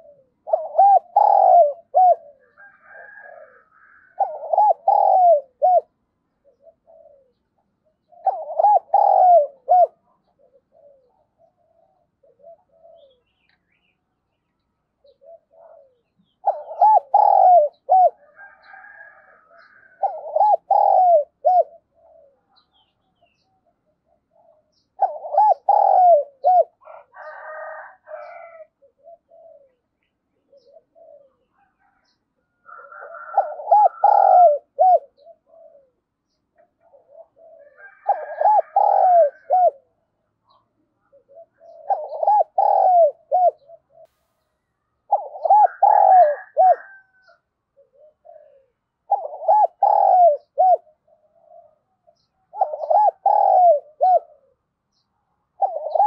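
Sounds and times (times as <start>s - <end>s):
dove cooing: 0.0s - 13.6s, 15.0s - 44.1s, 45.0s - 56.0s.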